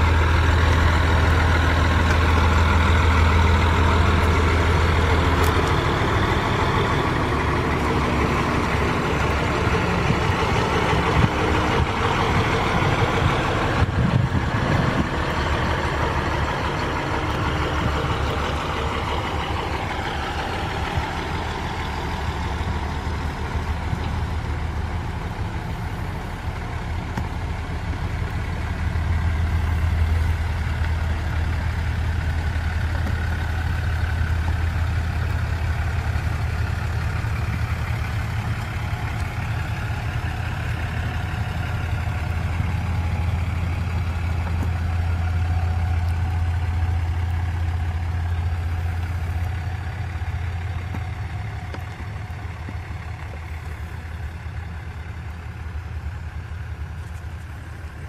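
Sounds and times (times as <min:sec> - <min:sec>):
heavy truck engine under load: 0:00.0 - 0:58.0.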